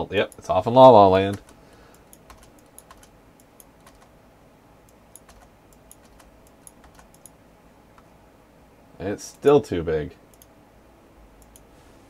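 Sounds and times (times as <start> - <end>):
computer keyboard keystrokes: 1.2 - 4.1, 5.1 - 7.4.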